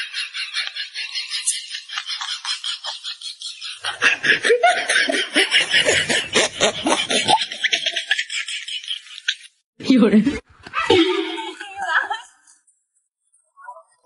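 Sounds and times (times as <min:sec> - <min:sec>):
rhythmic laughter: 0:00.0 - 0:09.6.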